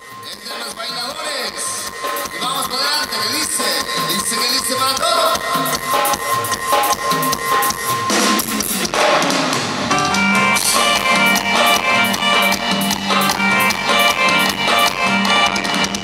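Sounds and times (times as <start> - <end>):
bass: 0.0 - 16.0
held keyboard chords: 1.3 - 16.0
drum kit hits: 5.2 - 16.0.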